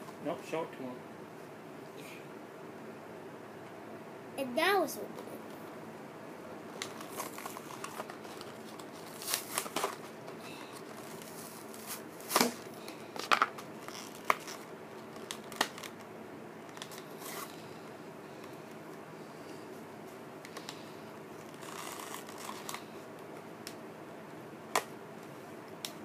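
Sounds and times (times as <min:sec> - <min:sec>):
plastic packaging crinkling: 0:06.8 - 0:17.6, 0:21.4 - 0:23.0
plastic packaging clicks: 0:13.2 - 0:16.1.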